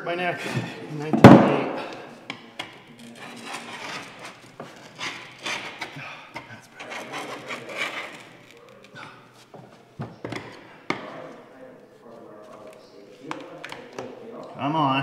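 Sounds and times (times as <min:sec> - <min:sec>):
tool scraping rubber seal: 0:02.6 - 0:09.5.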